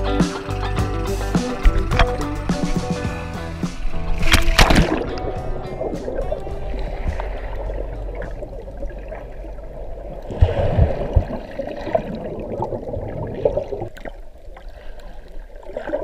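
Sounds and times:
low thumps: 0.0 - 9.4
underwater air bubbles rushing: 1.4 - 14.7.

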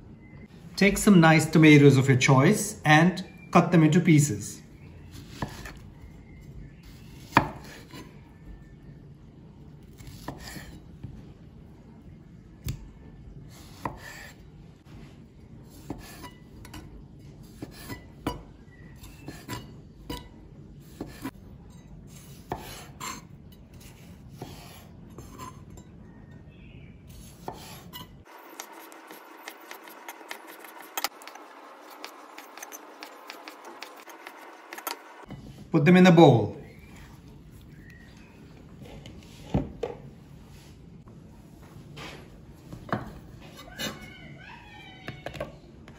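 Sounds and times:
knife cutting tomatoes on a board: 5.1 - 5.8, 6.8 - 8.1, 9.8 - 10.8, 13.5 - 14.4, 15.6 - 18.4, 19.0 - 21.3, 22.1 - 25.6, 27.1 - 35.0.

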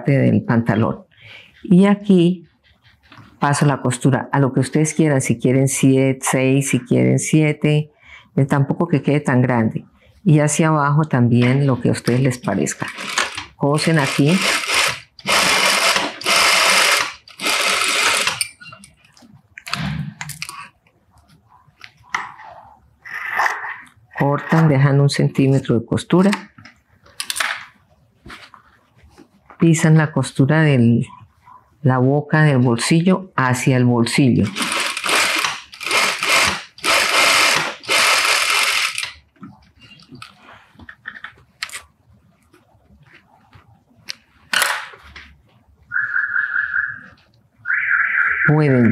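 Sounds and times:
sewing machine stitching: 12.1 - 18.6, 34.4 - 39.2.

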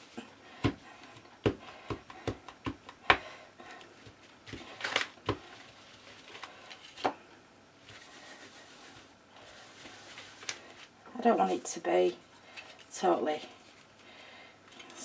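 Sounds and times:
paper rustling: 7.8 - 11.6.

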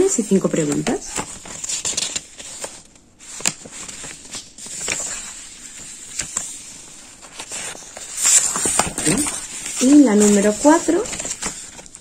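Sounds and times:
paper rustling: 0.2 - 12.0.

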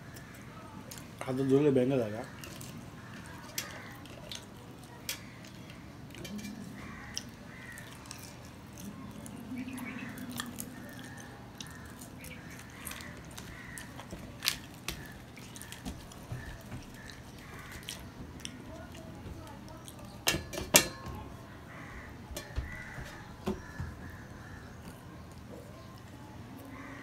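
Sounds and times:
man chewing with lip smacks: 2.4 - 20.2.

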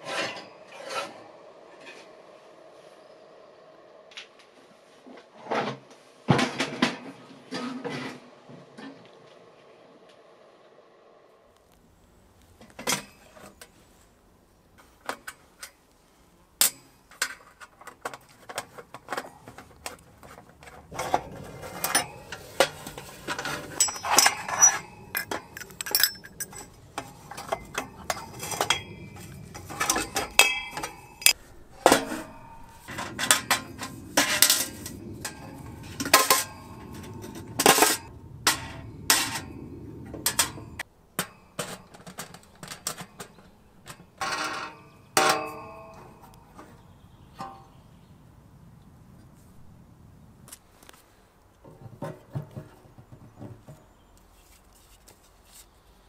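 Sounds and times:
sheet metal pipes clanking: 16.6 - 47.8.

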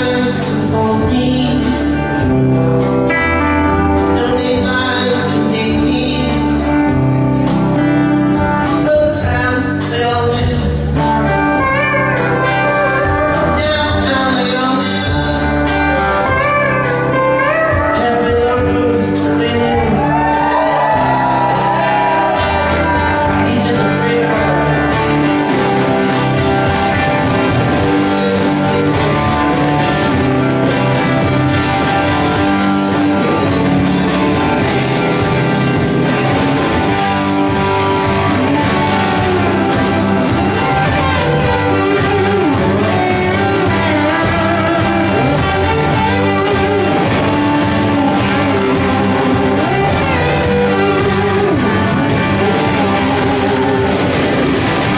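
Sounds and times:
bass guitar: 0.0 - 54.9
drums: 0.0 - 54.9
electric guitars: 0.0 - 54.9.

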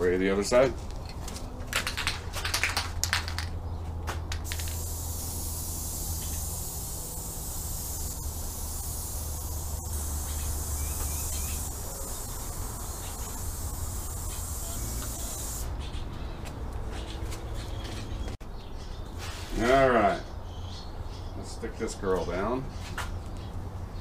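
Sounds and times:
aerosol spray hissing: 4.5 - 15.7.

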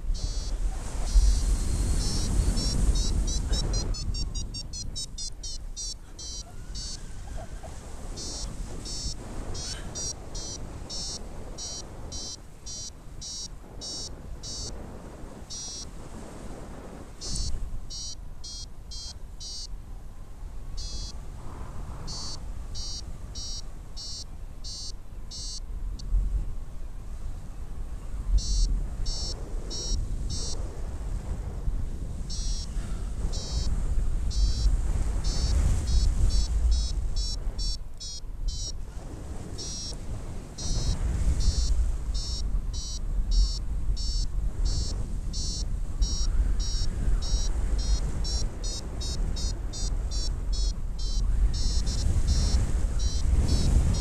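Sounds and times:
wind rumble on microphone: 0.0 - 54.0
variometer short high beeps: 0.1 - 7.0, 8.2 - 14.7, 15.5 - 15.9, 17.2 - 19.7, 20.8 - 21.2, 22.1 - 25.6, 28.4 - 30.6, 32.3 - 32.7, 33.3 - 38.8, 39.6 - 40.0, 40.6 - 54.0.

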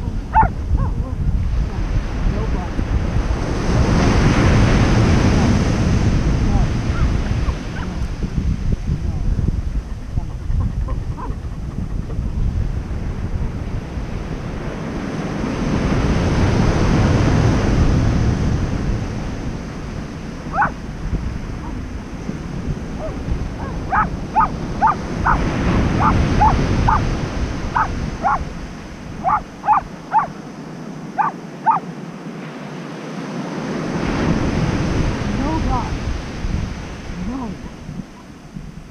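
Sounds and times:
dog giving high-pitched cries: 0.0 - 1.0, 20.5 - 20.8, 23.0 - 25.4, 26.0 - 27.1, 27.8 - 28.5, 29.2 - 30.3, 31.2 - 31.9
ocean surf breaking: 0.0 - 38.9.

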